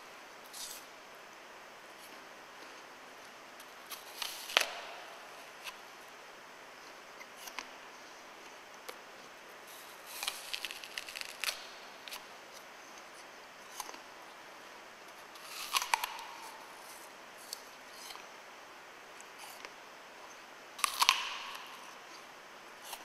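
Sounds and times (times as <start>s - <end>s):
faint steady hiss: 0.0s - 23.0s
apple crunching: 9.7s - 12.3s, 15.4s - 18.2s, 20.8s - 22.0s.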